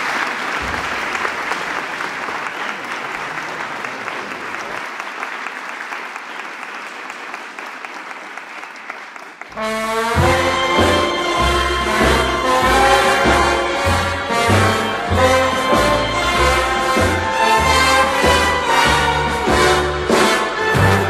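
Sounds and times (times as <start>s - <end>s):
audience applause: 0.0s - 9.9s.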